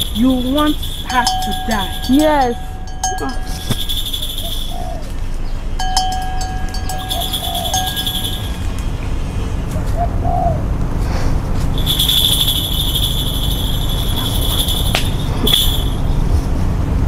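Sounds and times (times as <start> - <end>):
high whistling tone: 5.8 - 9.1.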